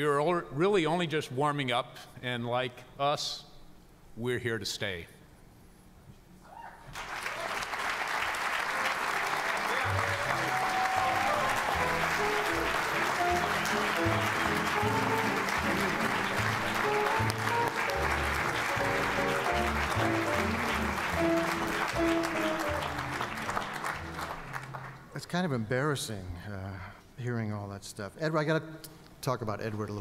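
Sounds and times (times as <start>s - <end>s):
audience applauding: 6.9s - 25.1s.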